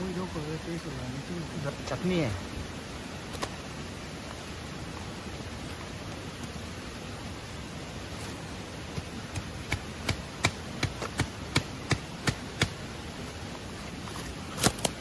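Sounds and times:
stream rushing: 0.0s - 15.0s
sharp rhythmic knocks: 9.0s - 12.8s.

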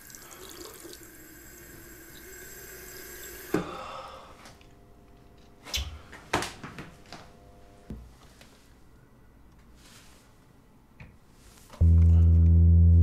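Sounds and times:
bathroom tap running: 0.0s - 3.7s.

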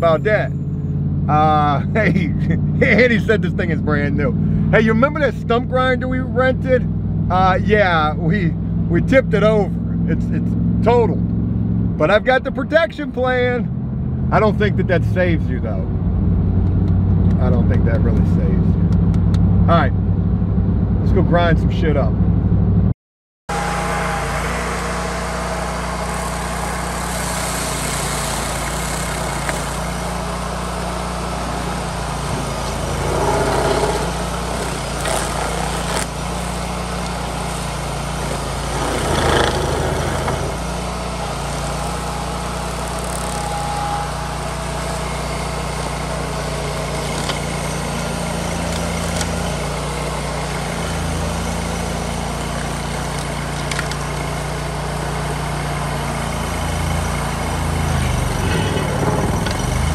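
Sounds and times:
cutter wheel grinding soil: 23.5s - 59.9s
stump grinder engine running: 23.5s - 59.9s.

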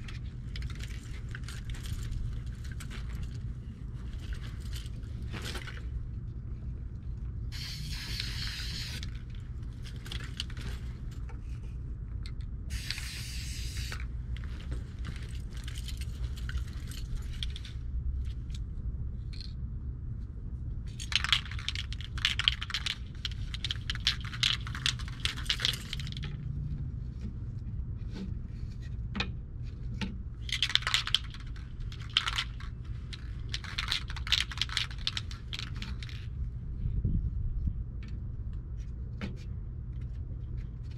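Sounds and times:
steady low rumble: 0.0s - 40.9s
spray can hissing bursts: 7.5s - 9.0s, 12.7s - 14.0s
spray can rattling and clicks: 7.5s - 9.3s, 12.7s - 14.1s, 20.9s - 26.4s, 30.4s - 36.2s.

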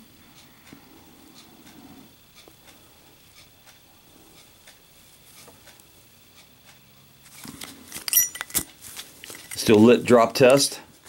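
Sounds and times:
light ticks and rubbing: 1.4s - 10.6s
metal handling noises: 7.4s - 9.8s.

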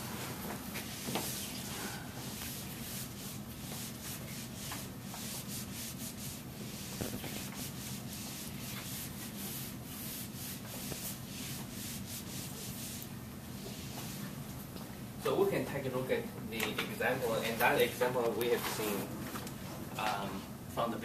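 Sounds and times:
eraser rubbing on whiteboard: 2.2s - 14.2s.

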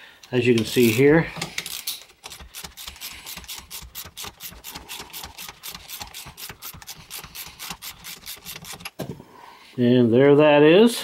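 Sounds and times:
socket ratchet clicking: 0.2s - 9.0s.

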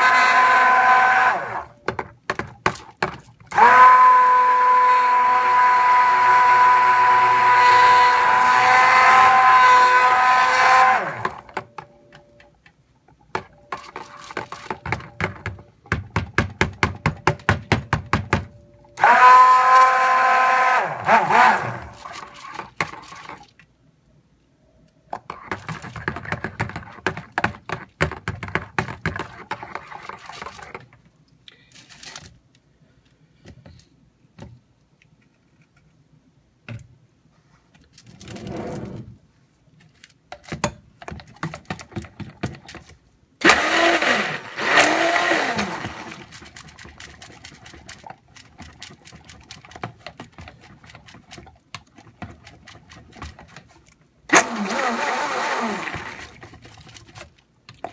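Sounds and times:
stick blender whirring: 0.0s - 1.7s, 3.5s - 11.6s, 19.0s - 22.3s, 43.4s - 46.9s, 54.3s - 56.7s.

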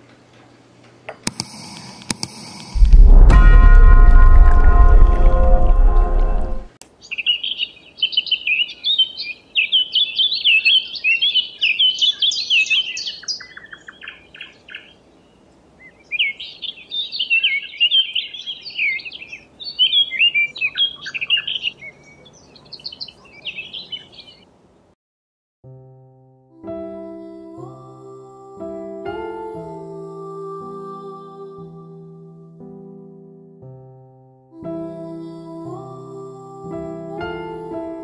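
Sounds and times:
small songbirds chirping: 6.9s - 24.5s.

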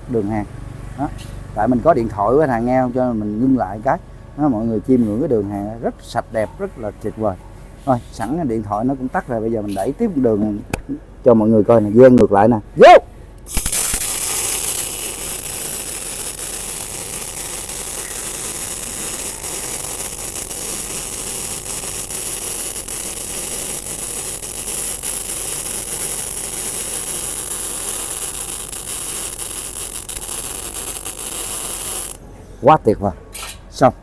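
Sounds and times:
welding arc crackling hiss: 13.4s - 32.2s.

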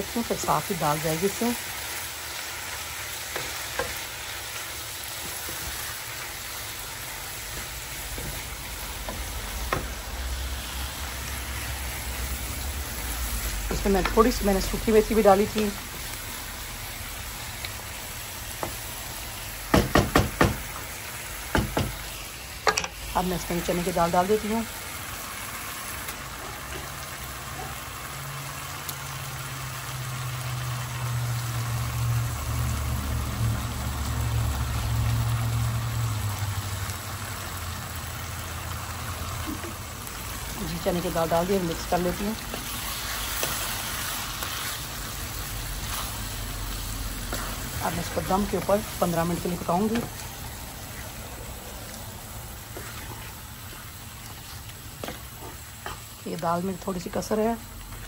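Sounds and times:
food sizzling in a frying pan: 0.0s - 58.0s
wooden spoon stirring: 52.7s - 56.0s.

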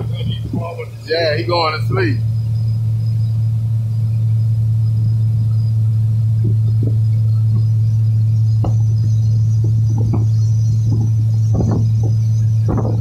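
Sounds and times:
boat motor droning: 0.0s - 13.0s
faint short knocks: 8.6s - 9.0s, 9.6s - 13.0s.

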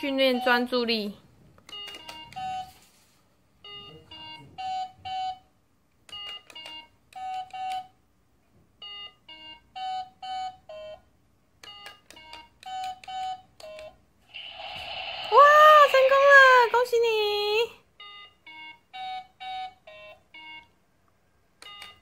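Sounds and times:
electronic toy beeping tones: 18.0s - 20.8s.

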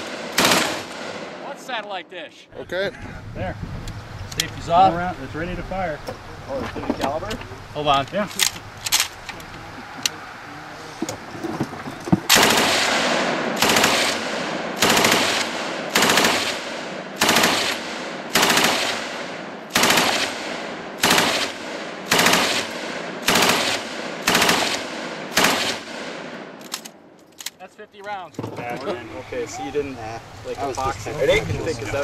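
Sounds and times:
machine gun firing bursts: 0.0s - 1.4s, 12.3s - 26.3s.

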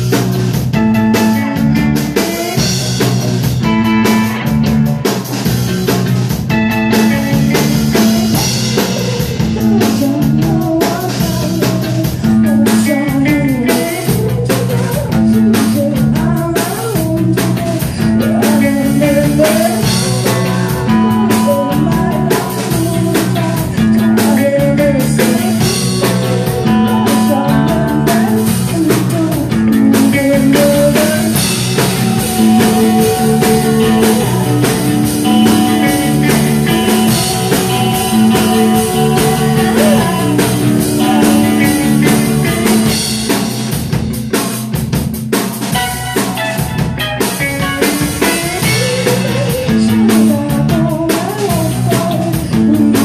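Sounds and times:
bass guitar: 0.0s - 53.0s
distorted electric guitars: 0.0s - 53.0s
drum kit beat: 0.0s - 53.0s
woman singing: 2.0s - 2.8s, 6.8s - 43.1s, 47.8s - 53.0s.

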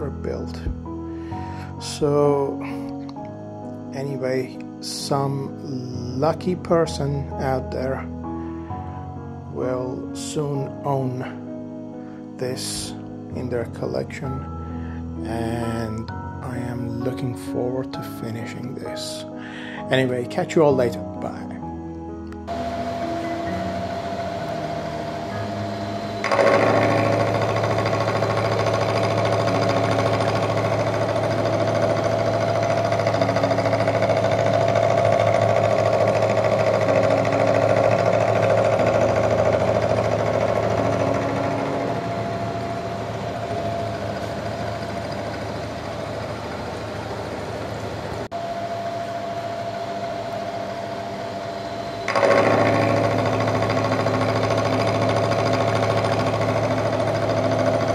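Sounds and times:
milling machine cutting steel: 22.5s - 57.9s.

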